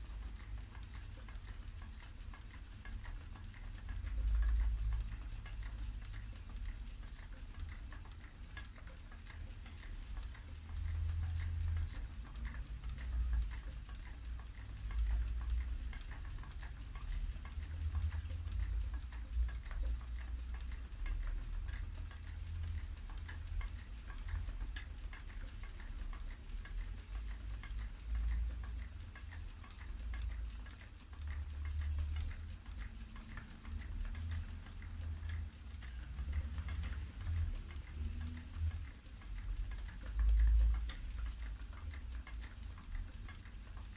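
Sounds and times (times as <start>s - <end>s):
spinning wheel clicks and ticks: 0.0s - 43.9s.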